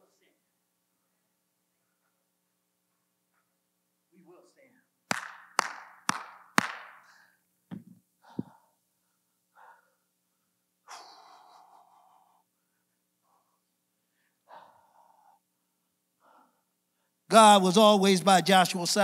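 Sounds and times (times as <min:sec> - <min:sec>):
hand clap: 0:05.1 - 0:07.1
heavy breath out: 0:08.2 - 0:08.8.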